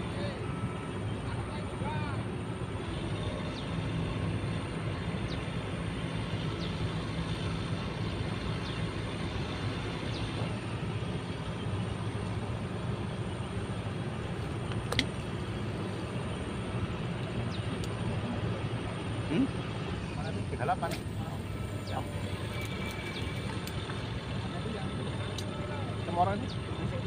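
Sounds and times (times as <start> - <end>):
low motor hum: 0.0 - 27.0
faint high whine: 15.4 - 27.0.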